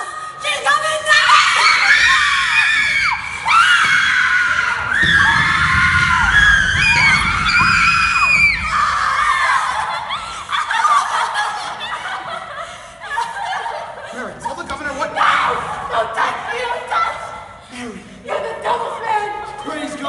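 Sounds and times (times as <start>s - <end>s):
girls screaming: 0.6s - 11.2s.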